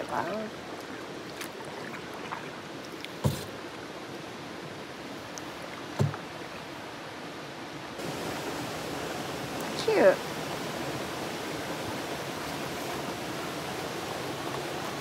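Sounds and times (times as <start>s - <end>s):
small waterfall rushing: 0.0s - 15.0s
dull knocks: 6.0s - 6.2s.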